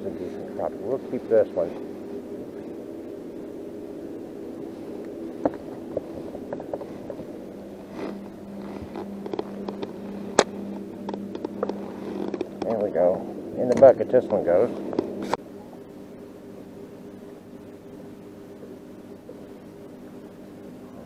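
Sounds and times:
steady mechanical hum: 0.0 - 21.0
steady tone: 0.0 - 21.0
fishing gear clicks and knocks: 5.1 - 12.9.

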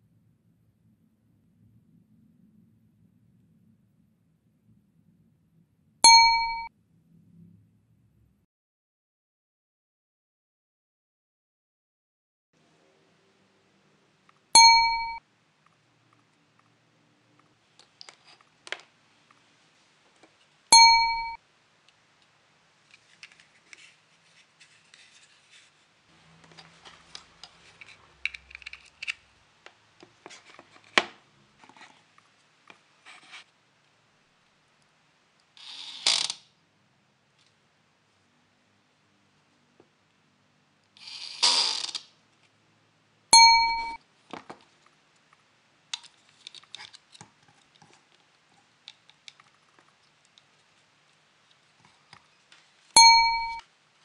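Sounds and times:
bright bell-like ding: 6.1 - 6.7, 14.6 - 15.2, 20.8 - 21.4, 43.4 - 44.0, 53.0 - 53.6.

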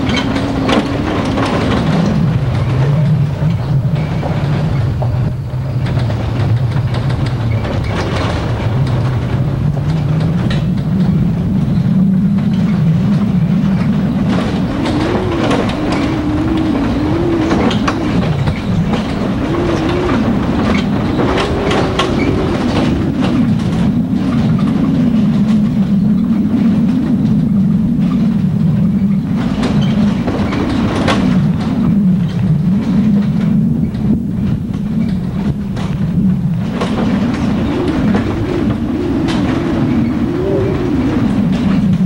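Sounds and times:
truck body rattling and knocking: 0.0 - 42.0
truck engine running: 0.0 - 42.0.

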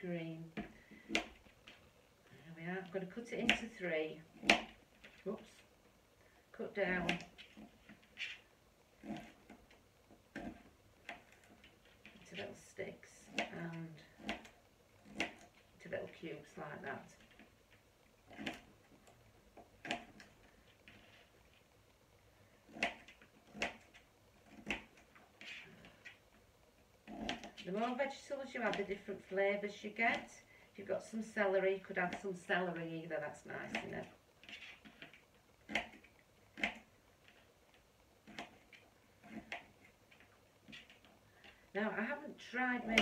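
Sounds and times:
knife chopping on plastic board: 0.5 - 1.4, 4.3 - 5.2, 13.2 - 15.5, 22.7 - 25.6, 33.6 - 36.9, 38.2 - 39.7.

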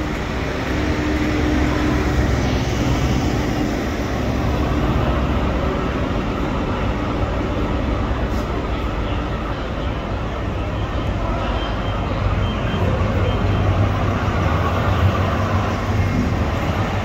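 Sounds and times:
diesel engine drone: 0.0 - 17.0
rail and wheel rumble: 0.0 - 17.0.

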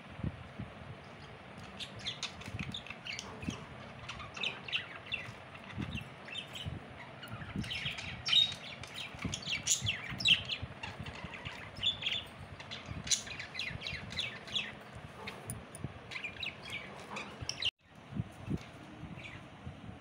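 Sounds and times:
budgerigars chirping: 1.6 - 15.5.

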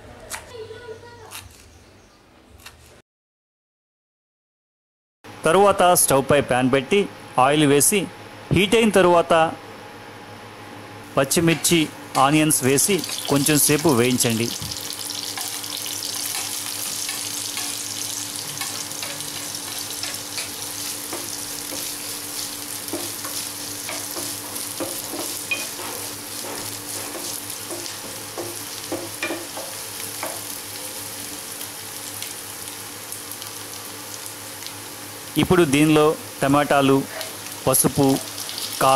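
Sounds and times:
onions sizzling in hot oil: 12.3 - 38.9.

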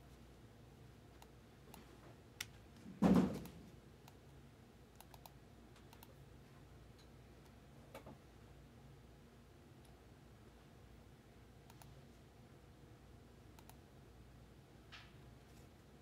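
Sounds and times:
keyboard and mouse clicks: 4.9 - 6.2, 11.7 - 12.0, 13.6 - 13.8.

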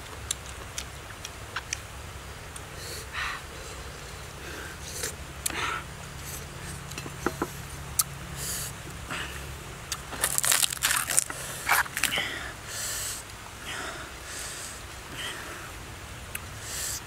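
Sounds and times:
crispy pork skin crunching: 9.9 - 12.2.

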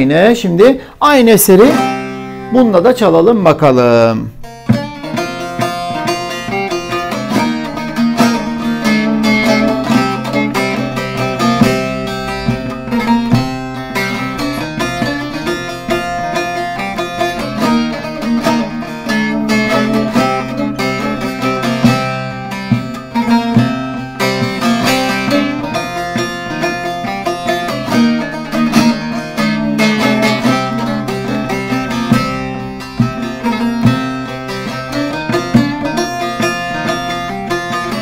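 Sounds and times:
plucked and strummed lute: 0.0 - 38.0.

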